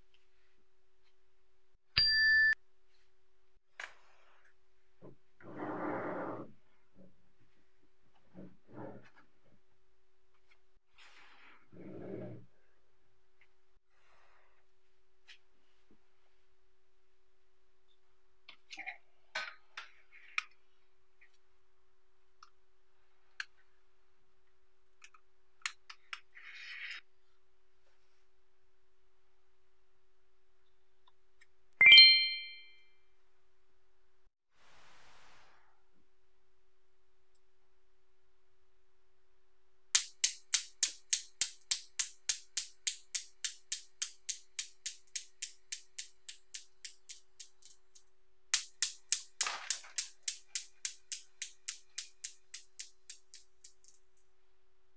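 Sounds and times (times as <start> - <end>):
small clicks and taps of balls: 40.0 - 54.4.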